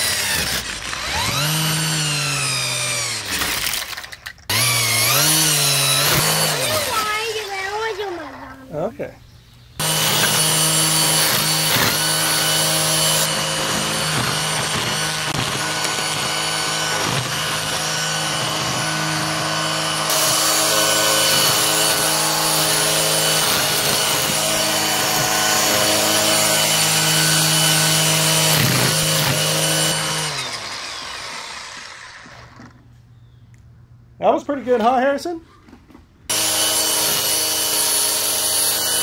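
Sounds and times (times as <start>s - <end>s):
trimmer line striking weeds: 0.0s - 8.0s, 9.8s - 32.8s
string trimmer running: 0.0s - 8.9s, 9.8s - 32.9s, 36.3s - 39.0s.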